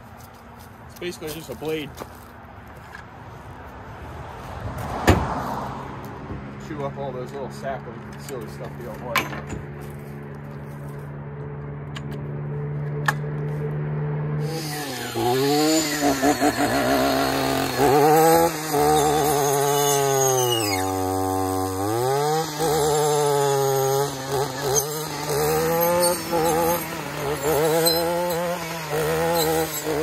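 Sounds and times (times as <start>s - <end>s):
brush cutter engine revving: 14.3s - 30.0s.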